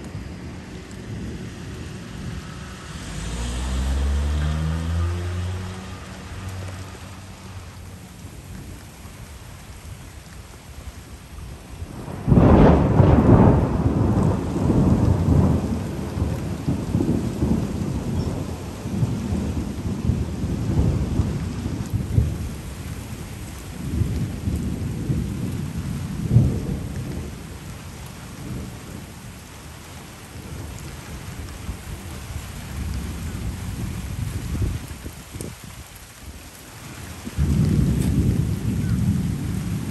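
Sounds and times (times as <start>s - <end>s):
thunder crack and rumble: 0.0s - 7.3s, 11.6s - 29.5s, 30.3s - 39.9s
steady rain: 0.0s - 39.9s.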